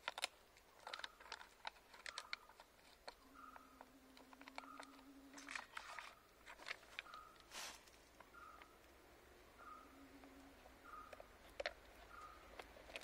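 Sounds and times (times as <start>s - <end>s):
steady low hum: 8.0s - 12.5s.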